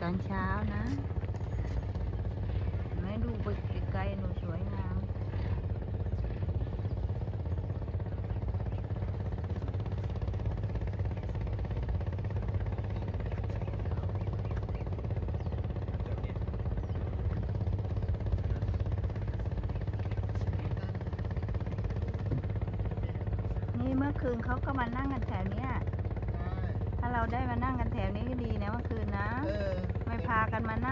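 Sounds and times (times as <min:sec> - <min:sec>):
low engine rumble: 0:00.0 - 0:30.9.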